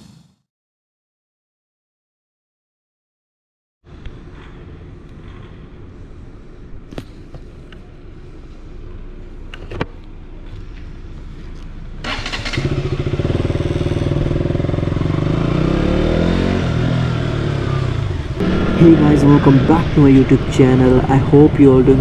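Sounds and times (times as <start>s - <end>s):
motorcycle engine idling and accelerating: 3.9s - 22.0s.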